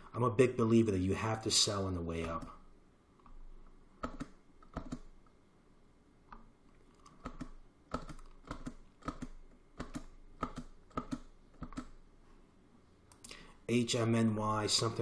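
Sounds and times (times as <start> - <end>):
computer keyboard key clicks: 4.0 - 5.1, 7.1 - 11.9.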